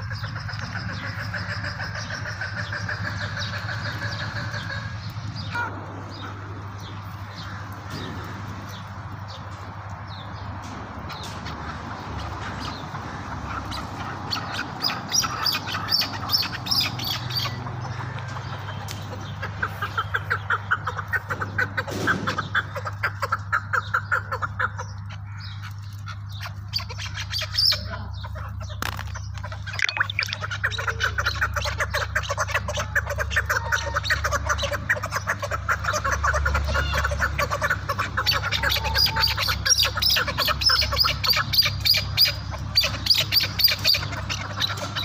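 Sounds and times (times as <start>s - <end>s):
partridges clucking: 28.5s - 32.6s.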